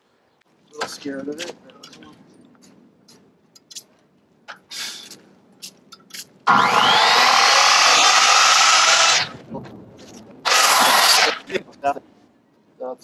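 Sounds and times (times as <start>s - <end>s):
circular saw cutting wood: 6.5s - 9.4s, 10.5s - 11.5s.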